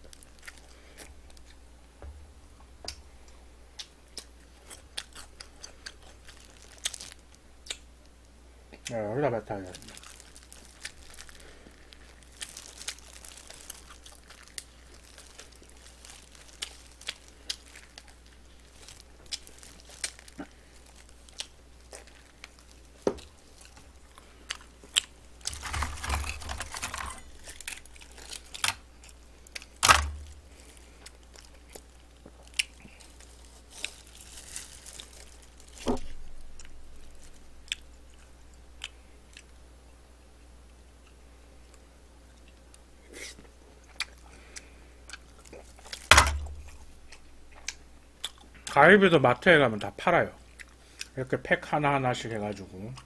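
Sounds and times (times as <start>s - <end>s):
crinkling rustles: 0.0s - 1.6s, 4.4s - 7.4s, 9.4s - 38.3s, 45.2s - 47.8s
person chewing and crunching: 0.0s - 1.6s, 3.8s - 7.9s, 9.7s - 39.6s, 41.0s - 48.7s, 50.5s - 51.2s.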